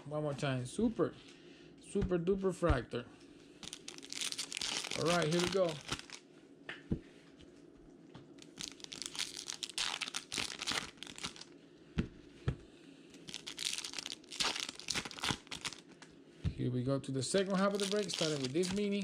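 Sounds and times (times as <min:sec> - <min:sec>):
foil wrapper tearing and crinkling: 0:03.6 - 0:06.2, 0:08.4 - 0:11.5, 0:13.2 - 0:16.0, 0:17.5 - 0:19.0.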